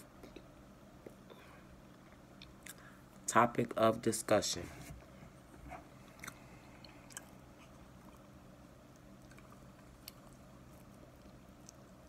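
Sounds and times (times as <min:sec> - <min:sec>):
faint low room hum: 0:00.0 - 0:12.0
chewing cornstarch crunches: 0:08.9 - 0:12.0.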